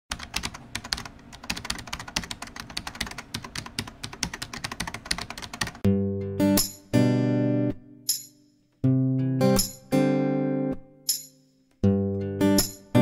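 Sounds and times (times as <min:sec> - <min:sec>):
music: 0:05.8 - 0:13.0.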